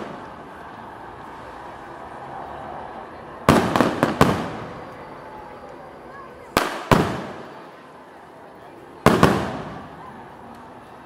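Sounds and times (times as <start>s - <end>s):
fireworks bangs echoing: 0.0s - 0.4s, 3.5s - 5.0s, 6.5s - 7.7s, 9.0s - 10.0s.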